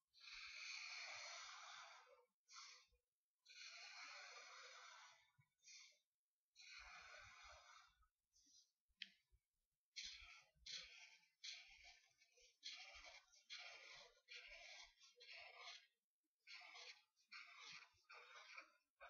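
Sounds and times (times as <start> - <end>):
marker drawing on paper: 10.0 - 18.9.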